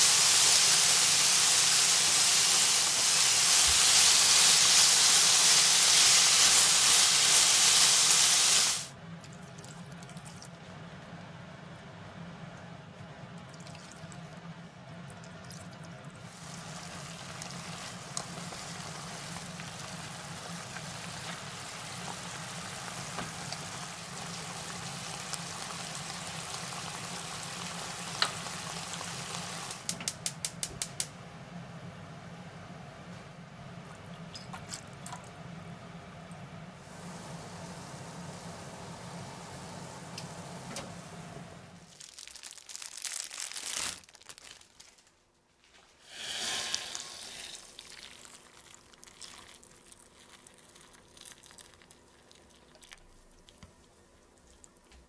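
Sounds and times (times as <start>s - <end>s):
meat sizzling in a frying pan: 0.0s - 8.9s, 16.3s - 29.8s.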